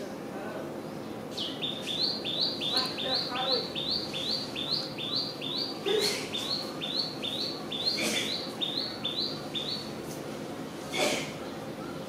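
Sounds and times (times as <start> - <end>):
bird chirping: 0.9 - 10.0.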